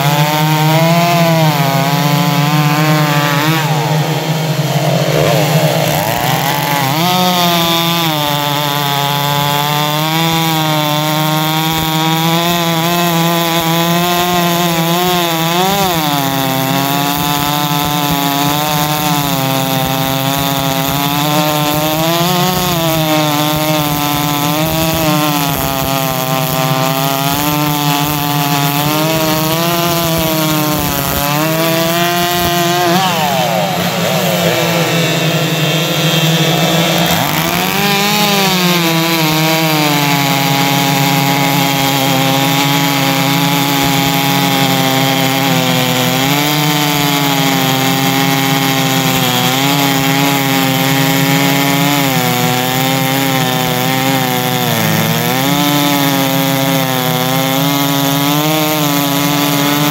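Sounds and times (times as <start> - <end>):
chainsaws cutting logs: 0.0 - 59.9.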